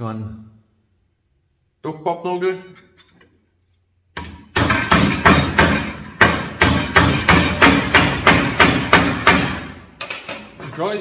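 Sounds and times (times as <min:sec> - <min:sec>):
hammer driving nail through sheet metal: 0:04.2 - 0:10.6.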